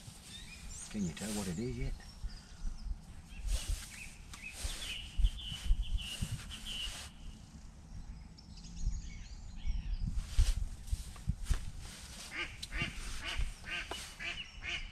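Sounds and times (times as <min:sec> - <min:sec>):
rustling near microphone: 0:00.0 - 0:07.6, 0:10.0 - 0:14.8
bird chirping: 0:00.2 - 0:10.2, 0:12.3 - 0:14.9
low bumps: 0:10.0 - 0:14.4.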